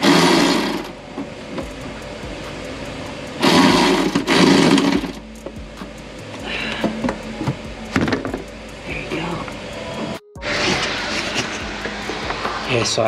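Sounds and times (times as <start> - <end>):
electric ratchet bursts: 0.0 - 1.0, 1.6 - 9.4.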